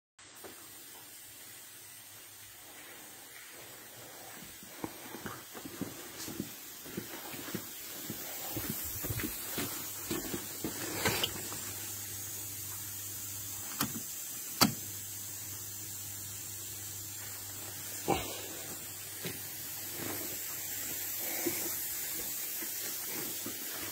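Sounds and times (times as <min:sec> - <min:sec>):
footsteps: 0:02.6 - 0:11.6, 0:18.1 - 0:23.9.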